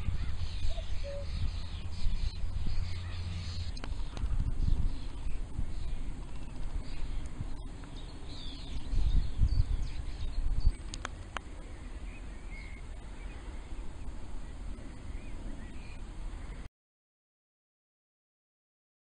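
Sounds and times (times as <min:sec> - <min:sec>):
distant small birds chirping: 0:00.0 - 0:16.7
wind gusting against microphone: 0:00.0 - 0:16.7
sharp clicks: 0:10.8 - 0:11.5.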